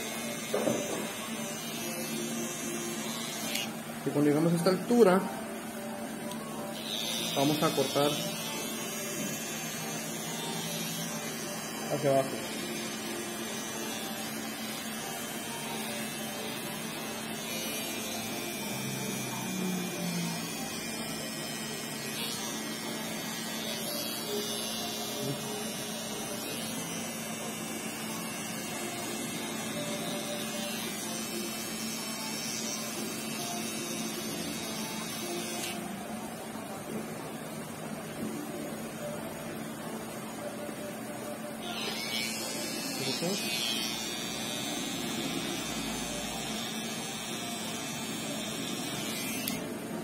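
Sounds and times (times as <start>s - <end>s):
electric hair trimmer buzzing: 0.0s - 5.3s, 6.3s - 35.9s, 41.6s - 49.7s.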